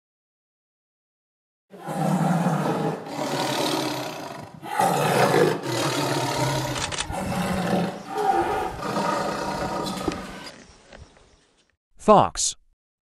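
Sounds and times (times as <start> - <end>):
big cat growling: 1.8 - 10.5.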